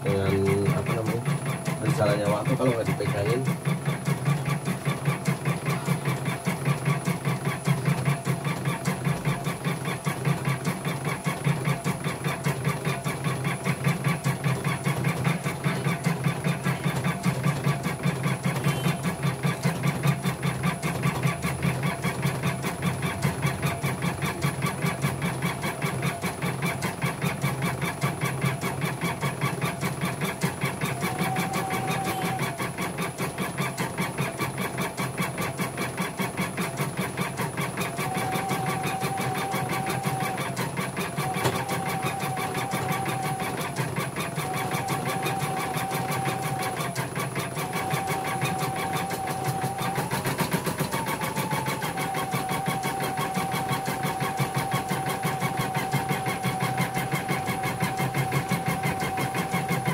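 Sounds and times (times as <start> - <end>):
embroidery machine stitching: 0.0 - 59.9.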